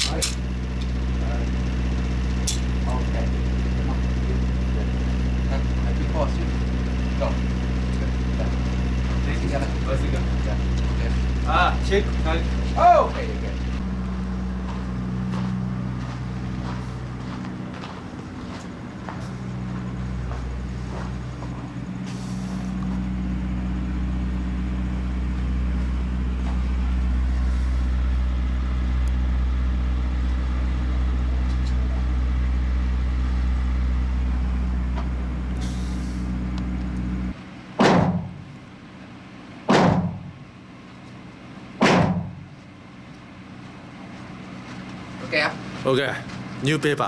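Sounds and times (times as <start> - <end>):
low motor hum: 0.0 - 47.0
gunshots: 39.7 - 40.2, 41.8 - 42.3.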